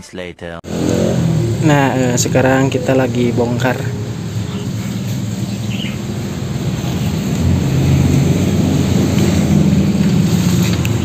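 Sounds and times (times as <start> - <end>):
vehicle engine humming: 0.6 - 11.0
bird chirp: 2.5 - 7.3.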